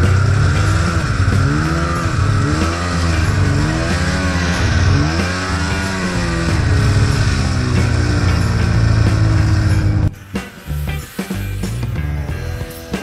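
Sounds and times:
snowmobile engine revving: 0.0s - 12.8s
steady low drone: 0.0s - 12.9s.

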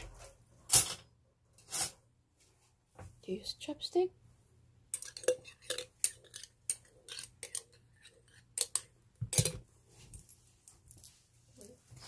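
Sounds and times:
metal spoon clinking in glass bottle: 5.0s - 9.6s.

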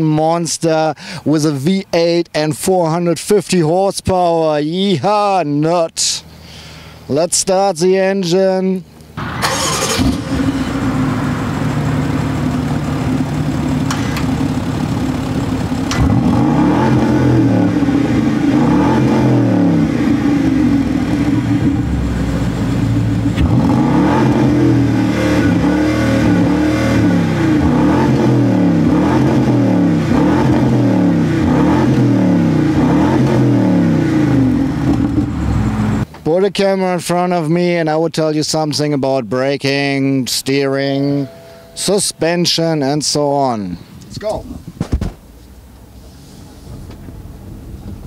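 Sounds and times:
car engine idling: 8.9s - 36.1s
car engine revving: 9.2s - 36.1s.

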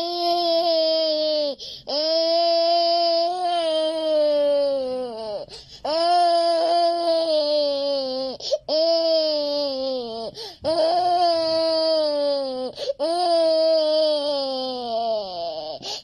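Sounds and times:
toddler wailing: 0.0s - 15.8s
sharp in-breaths: 1.6s - 1.9s, 5.5s - 5.8s.

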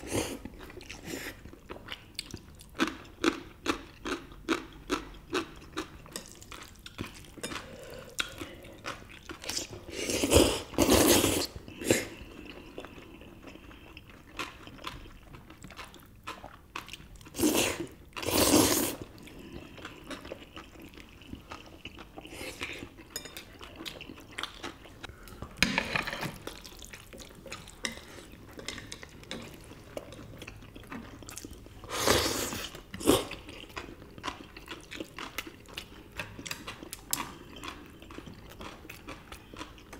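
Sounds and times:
chewing: 0.2s - 25.4s, 26.4s - 39.9s
slurping noodles: 9.5s - 12.2s, 17.3s - 19.1s, 31.8s - 33.4s.

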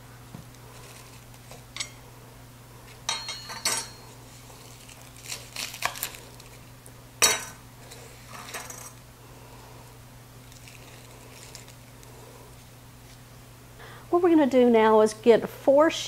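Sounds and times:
dry garlic skin crackling: 0.6s - 1.7s, 4.2s - 7.0s, 10.4s - 13.2s.

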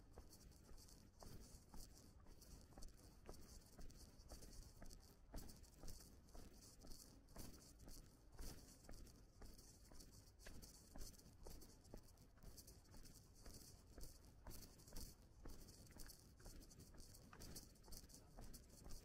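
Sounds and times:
faint footsteps walking: 0.0s - 19.0s.

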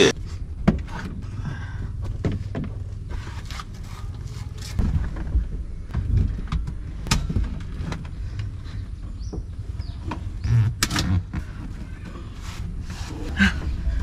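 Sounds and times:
wind rumble on microphone: 0.2s - 14.0s
knocks and scrapes handling car seats: 0.3s - 14.0s
loud thuds: 4.6s - 8.0s.

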